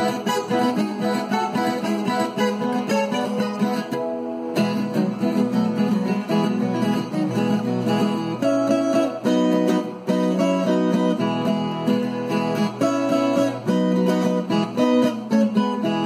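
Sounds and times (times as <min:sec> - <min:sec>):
acoustic guitar chords: 0:00.0 - 0:16.0.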